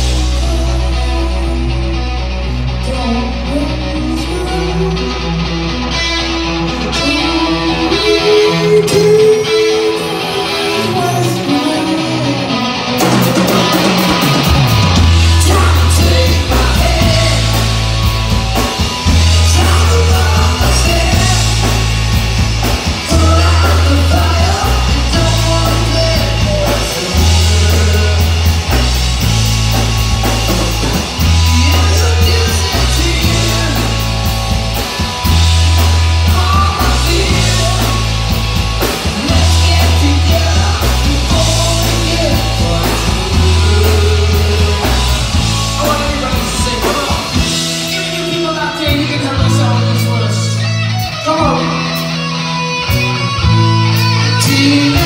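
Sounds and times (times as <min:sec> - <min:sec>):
bass guitar riff: 0:00.0 - 0:55.0
drums: 0:00.0 - 0:55.0
electric guitar: 0:00.0 - 0:55.0
men singing: 0:15.4 - 0:17.7, 0:19.4 - 0:21.8, 0:23.0 - 0:28.3, 0:31.4 - 0:34.0, 0:36.3 - 0:38.1, 0:39.1 - 0:47.6.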